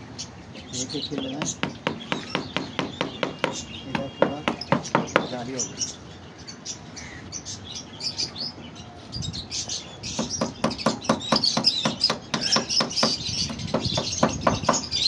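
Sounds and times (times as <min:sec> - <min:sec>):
small birds chirping: 0:00.0 - 0:15.0
hammer tapping nails into wood: 0:01.2 - 0:05.4, 0:10.2 - 0:14.8.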